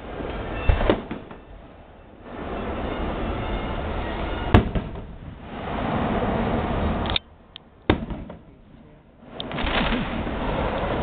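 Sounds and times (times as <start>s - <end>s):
rumbling fireworks: 0.0s - 7.2s, 7.8s - 11.0s
sharp crack: 0.7s - 1.4s, 4.5s - 5.5s, 6.8s - 8.6s, 9.3s - 11.0s
firework shell bang: 0.7s - 1.5s, 4.4s - 5.3s, 7.9s - 8.5s.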